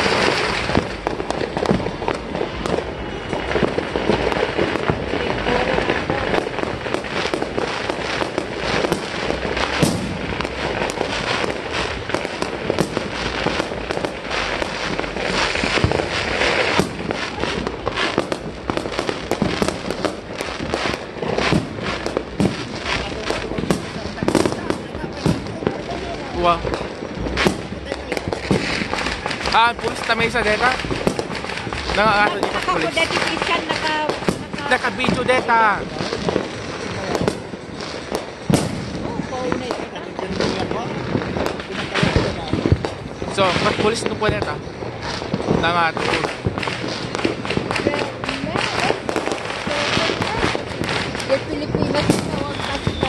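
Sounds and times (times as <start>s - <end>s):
fireworks bangs and crackles: 0.0s - 53.0s.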